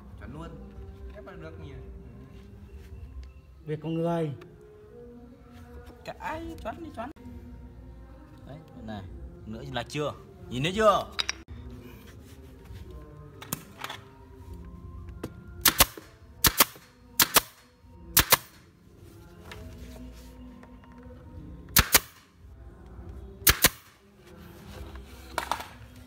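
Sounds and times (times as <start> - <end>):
nail gun shooting into wood: 15.6 - 17.6, 18.2 - 18.6, 21.7 - 22.3, 23.4 - 24.0.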